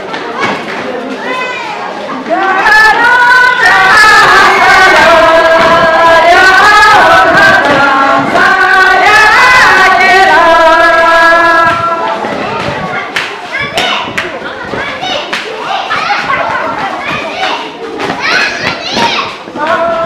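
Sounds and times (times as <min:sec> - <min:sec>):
women singing together: 0:02.2 - 0:12.4, 0:19.5 - 0:20.0.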